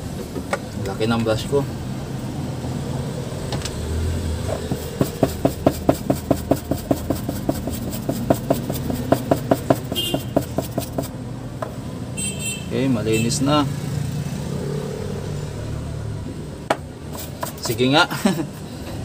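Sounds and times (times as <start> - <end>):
brush scrubbing circuit board: 4.7 - 11.1, 17.1 - 17.9.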